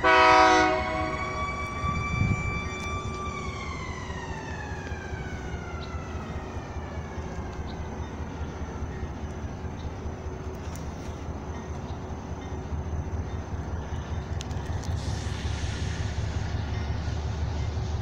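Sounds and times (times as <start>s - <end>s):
high whining tone gliding down: 0.0s - 8.2s
locomotive rumble: 0.0s - 18.0s.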